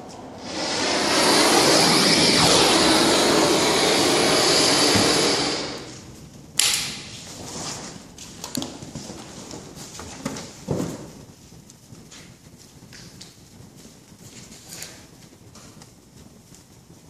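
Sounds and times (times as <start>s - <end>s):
gas torch hissing: 0.0s - 6.1s.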